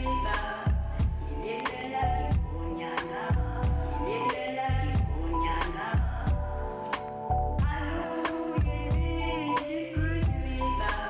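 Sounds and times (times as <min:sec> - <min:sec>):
steady drum beat: 0:00.5 - 0:01.2, 0:02.3 - 0:03.9, 0:05.0 - 0:06.5.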